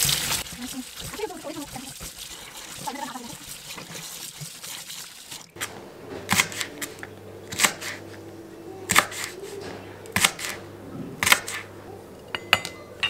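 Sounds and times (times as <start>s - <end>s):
knife chopping on cutting board: 5.6s - 8.0s, 8.9s - 10.6s, 11.2s - 11.7s.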